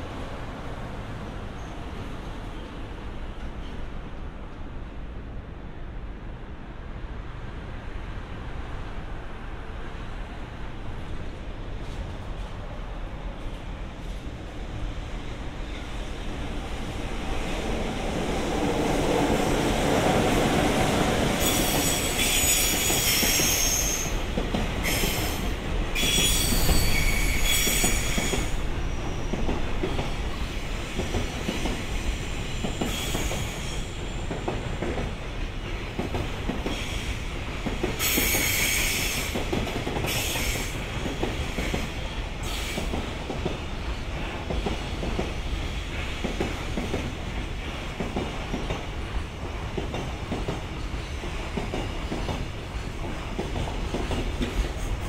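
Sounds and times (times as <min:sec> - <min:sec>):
freight train rumbling on rails: 0:00.0 - 0:55.0
high-pitched wheel squeal: 0:26.0 - 0:28.4.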